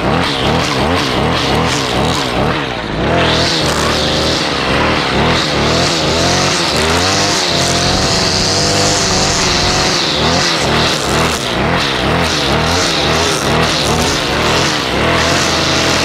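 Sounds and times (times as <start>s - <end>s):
string trimmer engine revving: 0.0s - 16.0s.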